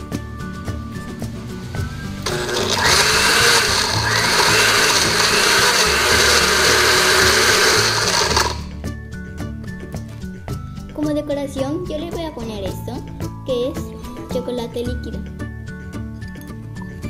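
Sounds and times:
blender crushing ice: 2.2 - 8.7.

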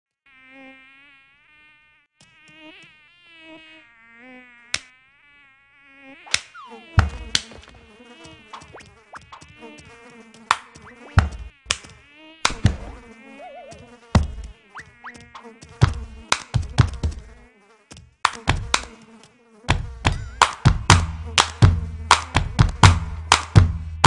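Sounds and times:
cartoon fly buzzing: 0.2 - 24.0
loud deep thumps: 7.0 - 7.8, 11.2 - 11.6, 12.5 - 13.0, 14.2 - 14.5, 15.8 - 17.3, 18.5 - 18.8, 19.7 - 24.0.

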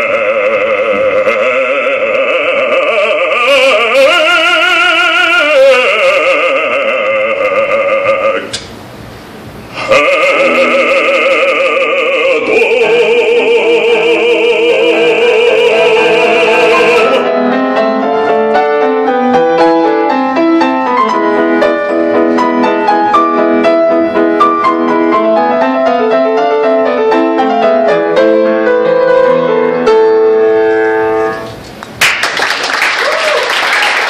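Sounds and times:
man singing opera: 0.0 - 8.6, 9.7 - 17.6
grand piano playing: 9.9 - 31.6.

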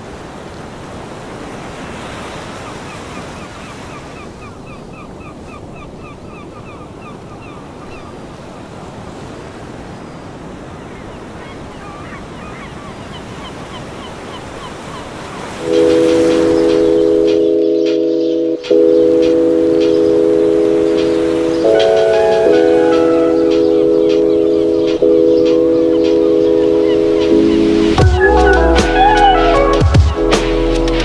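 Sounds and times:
waves breaking on beach: 0.0 - 28.4
high chirping: 15.4 - 30.4.

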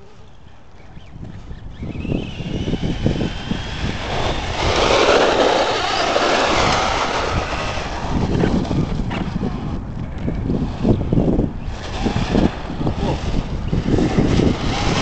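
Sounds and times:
electric motor whine: 0.0 - 15.0
wind buffeting microphone: 0.0 - 15.0.

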